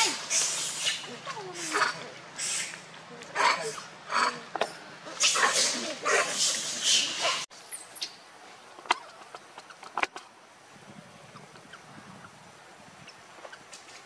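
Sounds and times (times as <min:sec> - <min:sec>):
monkey screaming: 0:00.0 - 0:02.7, 0:05.1 - 0:07.4.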